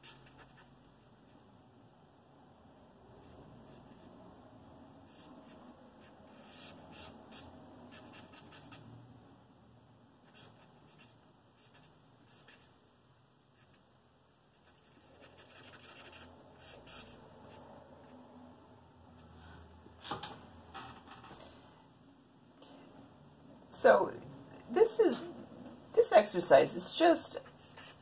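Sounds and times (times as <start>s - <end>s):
charcoal scratching on paper: 14.6s - 17.2s.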